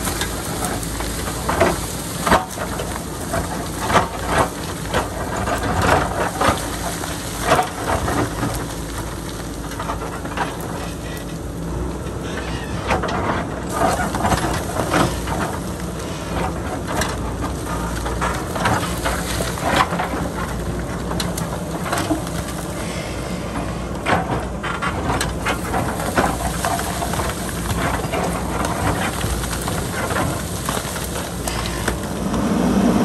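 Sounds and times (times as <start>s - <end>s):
diesel engine under load: 0.0s - 33.0s
stones clattering and scraping: 24.0s - 32.7s
bucket breaking rock: 24.8s - 32.2s.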